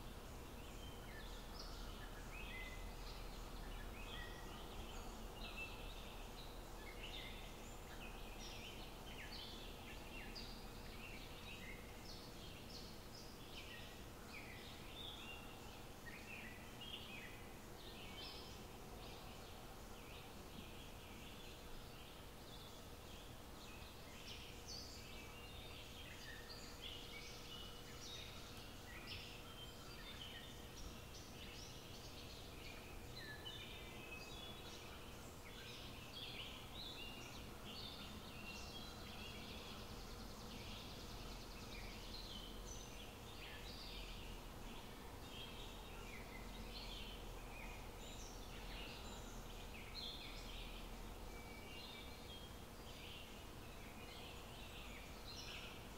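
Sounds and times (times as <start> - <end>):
small birds chirping: 0.0 - 55.9.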